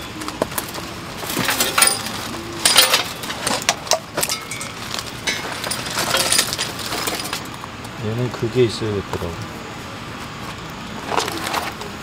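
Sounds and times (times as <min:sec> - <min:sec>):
metal fire pit parts clattering: 0:00.1 - 0:08.0.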